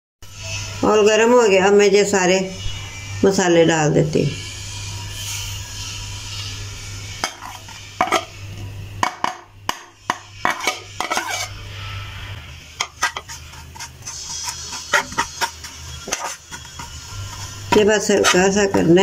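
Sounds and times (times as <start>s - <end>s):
steady low hum: 0.3s - 19.0s
spatula scraping pan: 4.4s - 8.4s, 9.0s - 19.0s.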